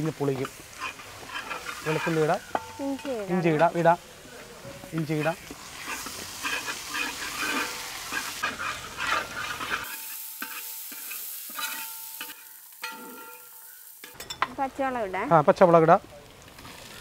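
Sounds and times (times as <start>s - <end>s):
food sizzling in hot oil: 0.0s - 17.0s
metal spatula scraping pan: 0.2s - 3.9s, 4.6s - 14.4s
metallic ringing of pan: 9.9s - 14.5s.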